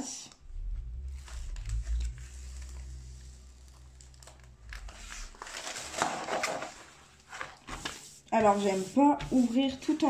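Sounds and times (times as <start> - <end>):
plastic film crinkling: 2.0 - 9.3.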